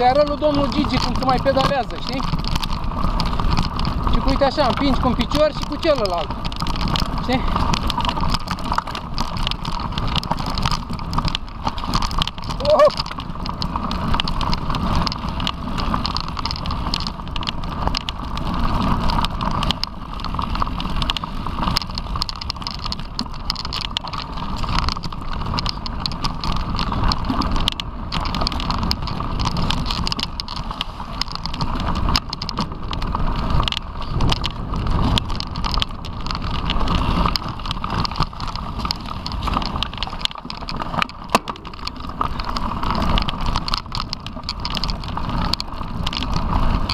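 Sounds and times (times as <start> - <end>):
bike rattles and knocks: 0.0 - 46.9
bike tyre noise on dirt: 0.0 - 46.9
wind on microphone: 20.6 - 46.9.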